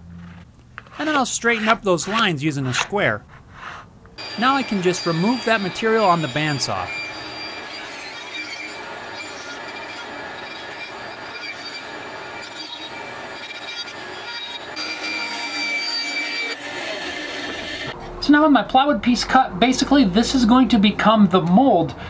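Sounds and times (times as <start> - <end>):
saw blade rasping through wood: 0.8 - 17.9
bandsaw whining: 3.6 - 18.0.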